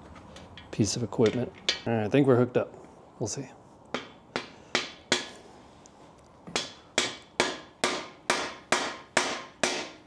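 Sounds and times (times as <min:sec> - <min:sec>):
hammer striking metal tool: 0:00.6 - 0:01.9, 0:04.0 - 0:05.4, 0:06.6 - 0:10.0.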